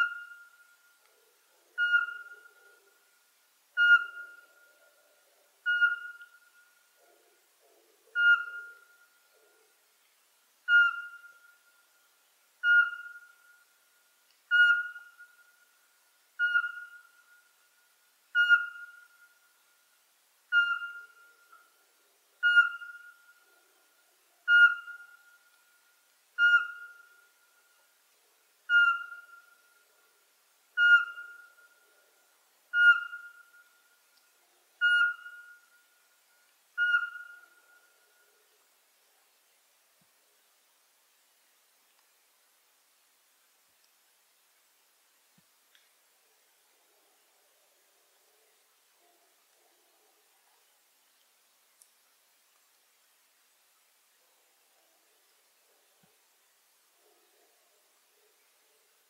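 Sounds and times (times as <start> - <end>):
owl whistled notes: 1.8 - 2.6, 3.8 - 4.7, 5.6 - 6.6, 8.2 - 9.0, 10.7 - 11.6, 12.6 - 13.6, 14.5 - 15.4, 16.4 - 17.4, 18.4 - 19.3, 20.5 - 21.7, 22.4 - 23.2, 24.5 - 25.2, 26.4 - 27.2, 28.7 - 29.6, 30.8 - 31.7, 32.7 - 33.7, 34.8 - 35.7, 36.8 - 37.8.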